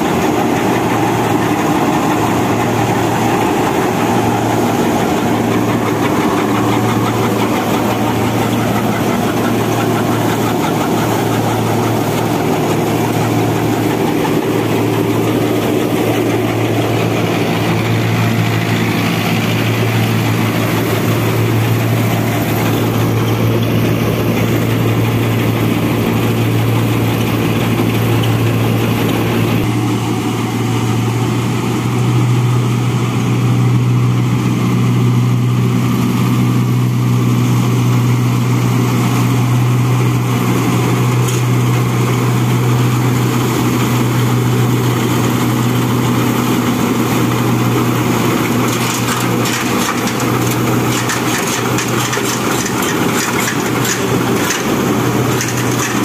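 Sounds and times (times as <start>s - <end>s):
dense fast crackling: 0.0s - 23.0s
tractor diesel engine under load: 0.0s - 56.0s.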